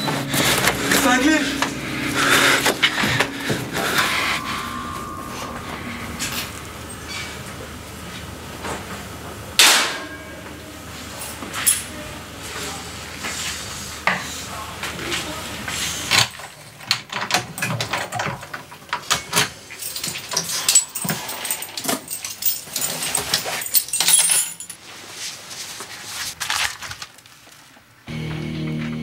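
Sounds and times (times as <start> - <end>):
keys and coins clattering: 16.8 - 24.8.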